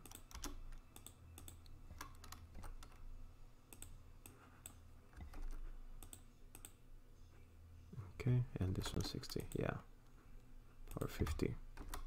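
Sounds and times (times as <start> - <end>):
keyboard typing: 0.0 - 3.0, 3.7 - 6.8, 10.9 - 12.0
low steady hum: 0.0 - 12.0.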